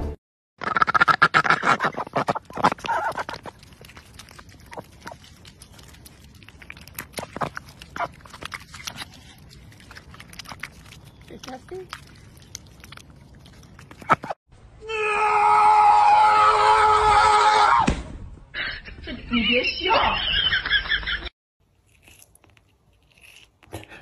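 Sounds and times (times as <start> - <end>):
bill pecks and clicks: 0.6 - 14.3
duck bill smacking and slurping: 0.6 - 14.4.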